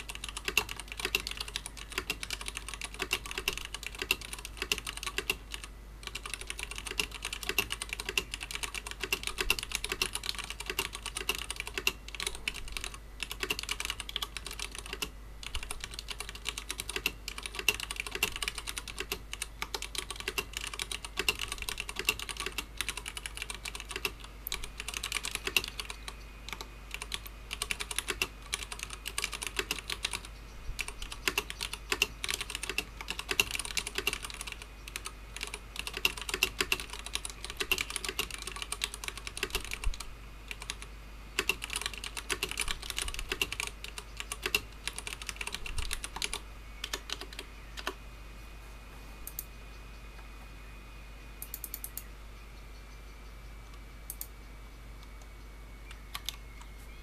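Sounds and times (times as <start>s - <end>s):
mechanical keyboard typing: 0.0s - 48.0s, 51.4s - 52.0s, 56.1s - 56.4s.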